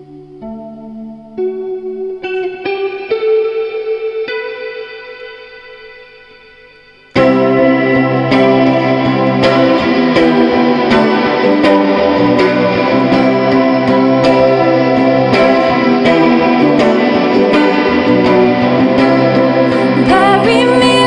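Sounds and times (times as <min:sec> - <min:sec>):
electric guitar through effects: 0:00.0 - 0:21.0
held synth chords: 0:00.0 - 0:21.0
steady beat: 0:06.9 - 0:21.0.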